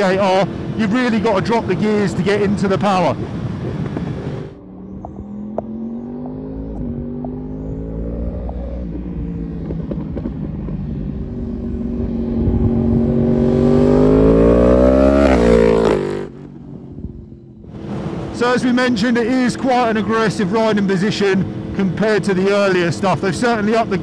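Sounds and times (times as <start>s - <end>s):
motorcycle engine revving: 3.2s - 18.2s.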